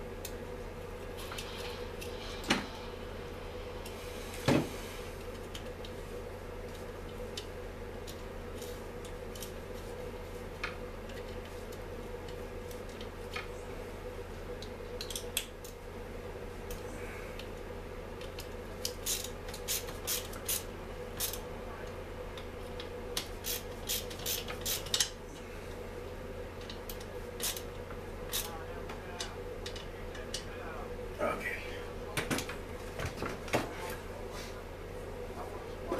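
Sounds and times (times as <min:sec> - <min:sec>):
steady low hum: 0:00.0 - 0:35.9.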